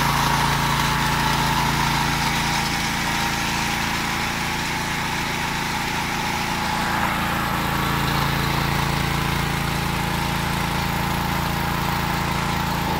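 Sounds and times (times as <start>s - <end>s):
gasoline engine running: 0.0s - 12.9s.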